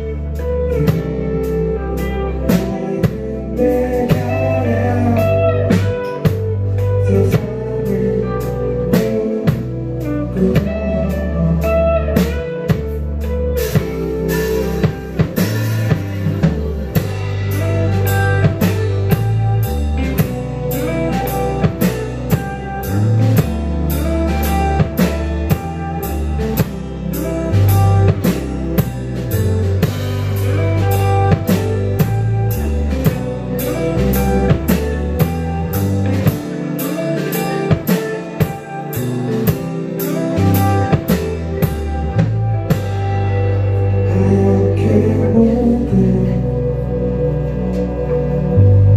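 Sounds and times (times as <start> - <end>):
bass guitar line: 0.0 - 48.9
electric guitars: 0.0 - 48.9
drum kit hits: 13.6 - 43.4.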